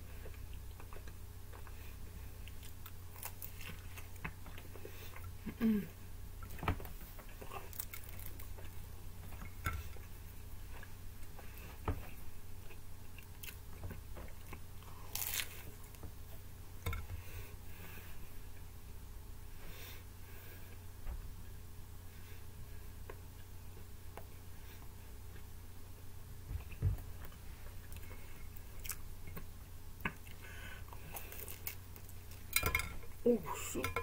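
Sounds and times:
person chewing crunchy pizza: 0.2s - 5.5s, 12.6s - 16.0s, 27.9s - 29.4s.

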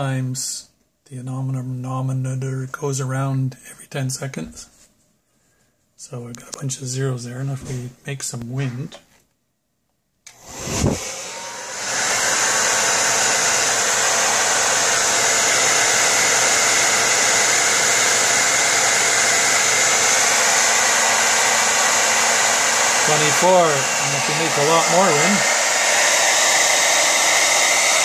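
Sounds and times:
hair dryer running: 10.3s - 28.0s.

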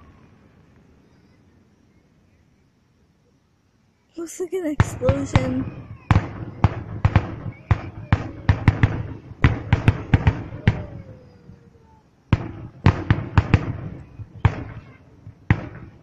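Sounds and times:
fireworks banging: 4.6s - 11.6s, 12.3s - 16.0s.

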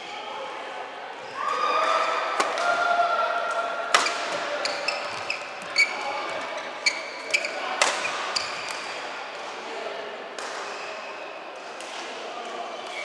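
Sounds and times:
shoes squeaking on court floor: 4.0s - 8.9s
rackets striking shuttlecock: 7.8s - 8.8s.

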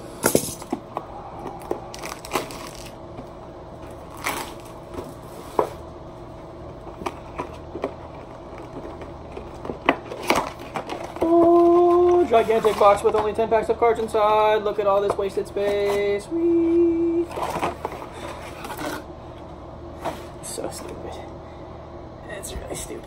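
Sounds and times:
cardboard crackling and rustling: 6.9s - 13.4s.

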